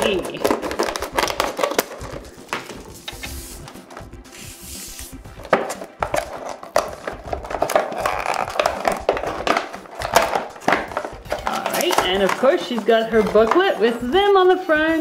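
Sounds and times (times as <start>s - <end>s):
stiff plastic snapping: 0.0s - 2.6s, 5.5s - 12.5s
plastic packaging crinkling: 0.0s - 3.2s, 6.0s - 13.4s.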